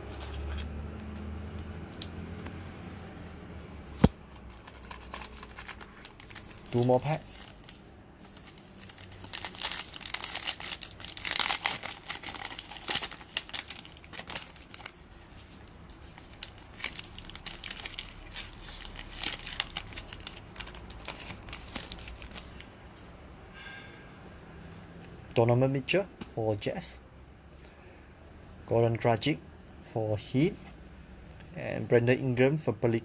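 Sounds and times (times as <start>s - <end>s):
foil wrapper tearing and crinkling: 4.4s - 22.6s.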